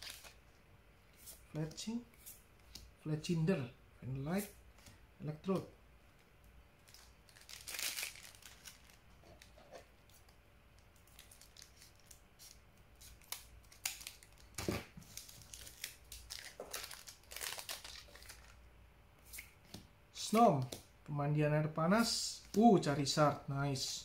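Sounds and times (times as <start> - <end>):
foil wrapper crinkling: 0.0 - 0.4, 6.8 - 9.5, 11.0 - 12.2, 13.0 - 18.6
cards rustling: 6.8 - 10.3, 10.9 - 18.6.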